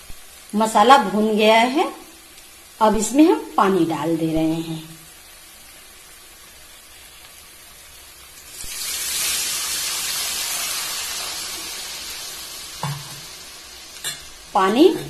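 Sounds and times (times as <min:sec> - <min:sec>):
faint sizzle: 0:00.0 - 0:15.0
hot oil hissing: 0:00.0 - 0:15.0
water pouring: 0:08.4 - 0:13.6.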